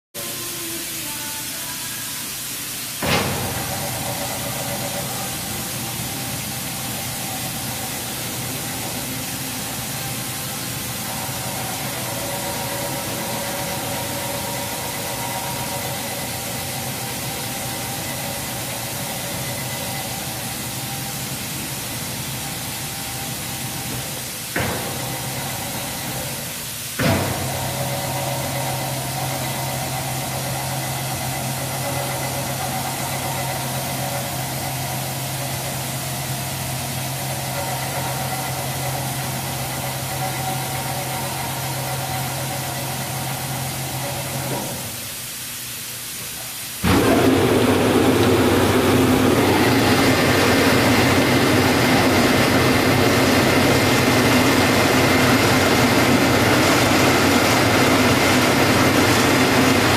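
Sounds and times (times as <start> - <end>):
motor hum: 3.0 - 26.4, 46.8 - 59.9.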